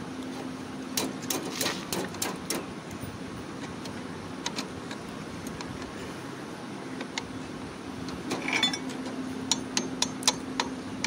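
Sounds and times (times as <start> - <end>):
metal clicks of brake parts: 3.6 - 6.0, 8.0 - 10.8.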